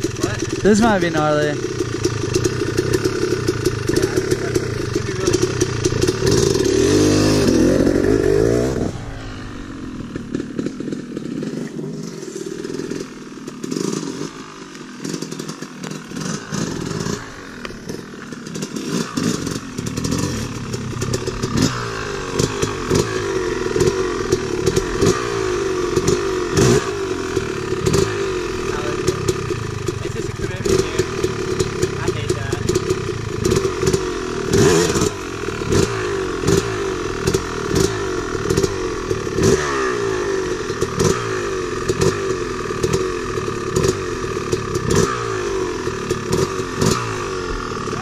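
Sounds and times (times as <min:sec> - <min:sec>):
dirt bike engines revving: 0:00.0 - 0:48.0.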